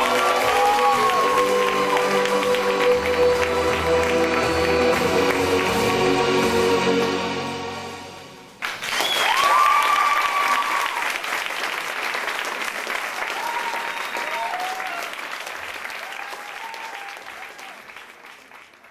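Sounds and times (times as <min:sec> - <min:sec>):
cheering calls: 0:00.0 - 0:03.1, 0:08.9 - 0:11.2, 0:13.2 - 0:15.2, 0:15.8 - 0:18.0
audience applause: 0:00.0 - 0:07.1, 0:08.6 - 0:18.9
performance music: 0:00.0 - 0:09.7.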